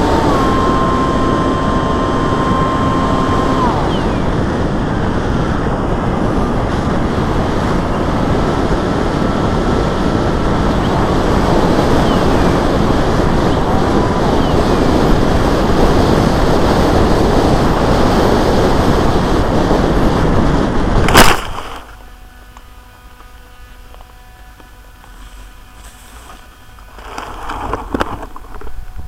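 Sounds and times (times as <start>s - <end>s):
plane hitting the ground: 0.0s - 29.0s
wind rushing over microphone: 0.0s - 29.0s
grass rustling: 20.7s - 29.0s.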